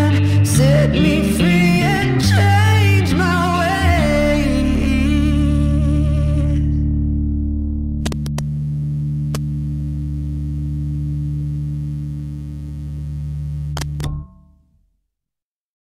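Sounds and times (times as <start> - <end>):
clicks: 8.0 - 9.9, 13.0 - 14.4.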